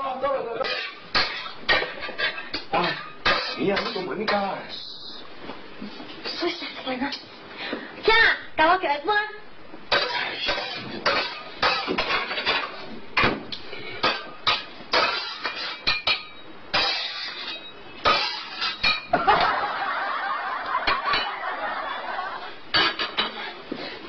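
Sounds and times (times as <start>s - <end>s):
metal spatula scraping a wok: 0.6s - 4.1s, 9.9s - 12.8s, 14.0s - 19.1s
kitchenware clinking: 0.6s - 4.5s, 9.9s - 13.4s, 14.0s - 19.8s, 20.8s - 22.1s, 22.7s - 23.6s.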